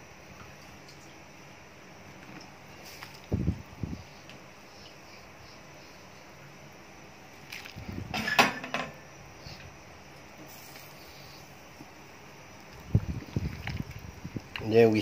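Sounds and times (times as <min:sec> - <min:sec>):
pot clattering with metal clink: 0:08.2 - 0:09.0.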